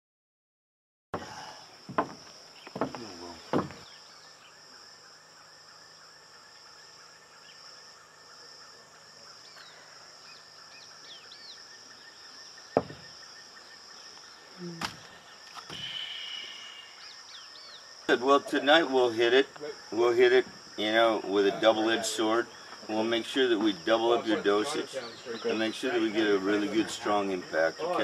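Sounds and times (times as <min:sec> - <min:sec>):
footsteps on wooden deck boards: 0:01.2 - 0:04.0, 0:12.7 - 0:13.2
single knocks: 0:01.9 - 0:03.9, 0:12.8 - 0:13.2
bird chirps: 0:02.5 - 0:24.1
high-pitched insect drone: 0:02.8 - 0:23.5.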